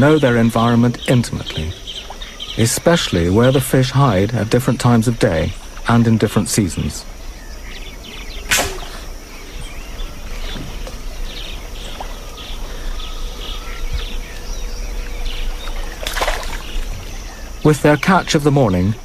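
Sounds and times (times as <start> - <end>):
birds chirping: 0.0 - 19.0
steady high hum: 0.0 - 19.0.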